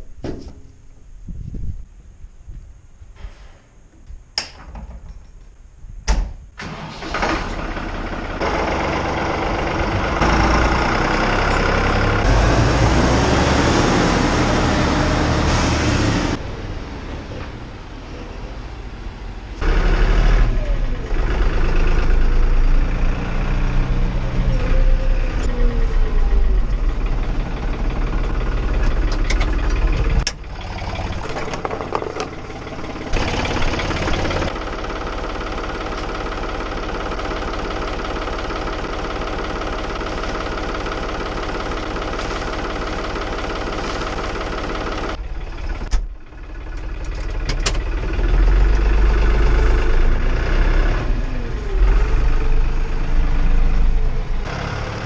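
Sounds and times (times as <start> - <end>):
tractor diesel engine running: 6.6 - 55.0
clunk: 31.1 - 32.6.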